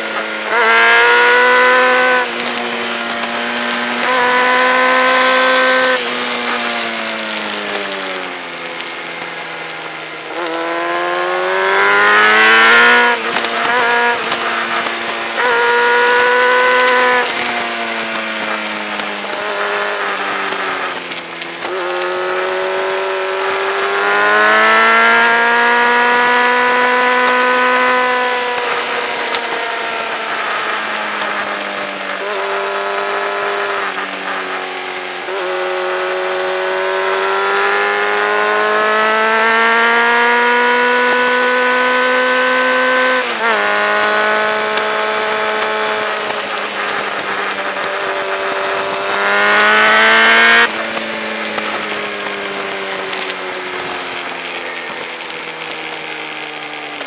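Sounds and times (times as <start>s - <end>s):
motorcycle engine revving: 0.0s - 57.0s
motorcycle gear change: 0.4s - 9.3s.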